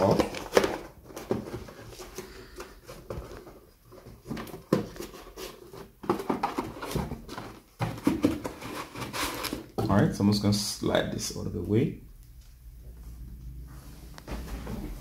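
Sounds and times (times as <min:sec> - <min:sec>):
cardboard box scraping and rustling: 0:04.8 - 0:09.6.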